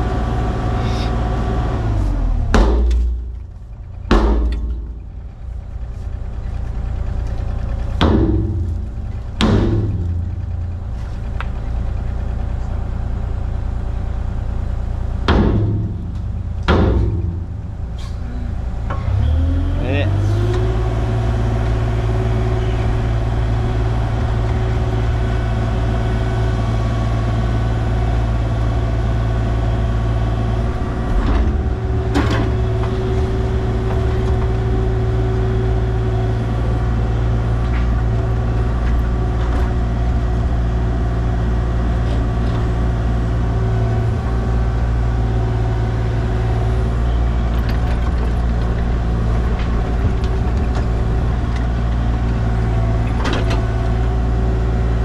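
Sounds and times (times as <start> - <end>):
heavy equipment engine running: 0.0 - 55.0
sharp knocks: 2.5 - 3.2, 4.0 - 5.0, 7.9 - 10.5, 15.2 - 18.0.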